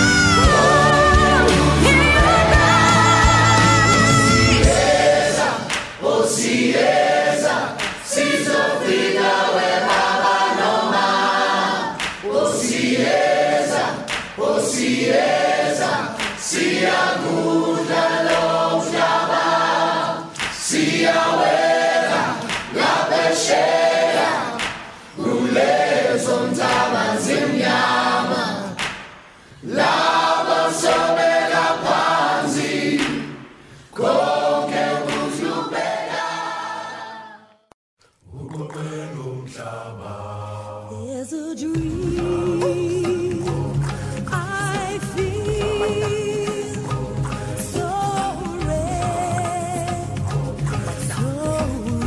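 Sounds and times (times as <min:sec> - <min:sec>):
choir singing: 0:00.0 - 0:28.9, 0:29.6 - 0:52.0.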